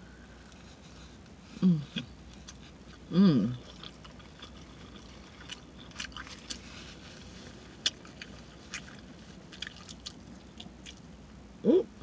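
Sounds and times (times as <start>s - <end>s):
person humming with full mouth: 1.6s - 2.0s, 3.1s - 3.6s, 11.6s - 12.0s
wet chewing: 2.0s - 11.1s.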